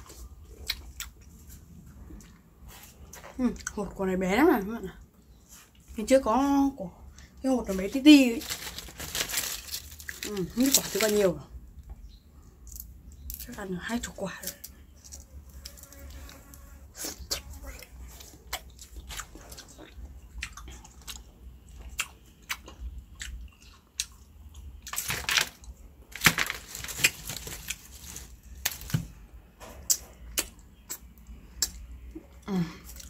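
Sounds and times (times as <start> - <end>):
wet chewing of fruit: 0.0 - 4.0, 15.6 - 25.0
fruit rind crackling as peeled: 7.7 - 11.4, 24.8 - 29.2.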